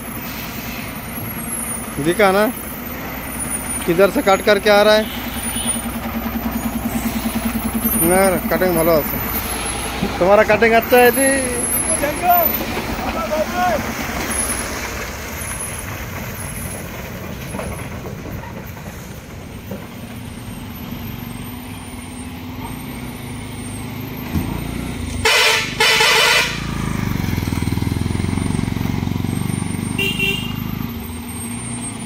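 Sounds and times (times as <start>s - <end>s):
lorry diesel engine: 0.0s - 32.0s
truck horn blasts: 4.8s - 6.0s, 25.2s - 26.8s, 30.0s - 30.8s.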